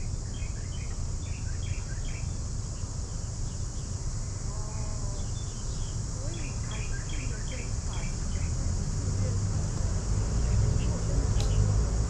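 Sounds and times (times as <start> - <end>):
high insect drone: 0.0 - 12.0
low steady rumble: 0.0 - 12.0
bird chirps: 0.2 - 4.0, 5.2 - 8.6.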